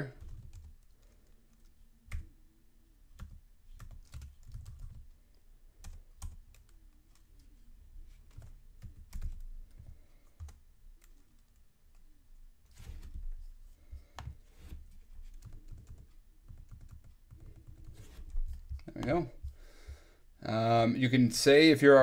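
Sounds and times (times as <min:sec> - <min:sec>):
typing on computer keyboard: 0:00.1 - 0:02.3, 0:03.2 - 0:05.1, 0:08.2 - 0:12.0, 0:15.3 - 0:18.9.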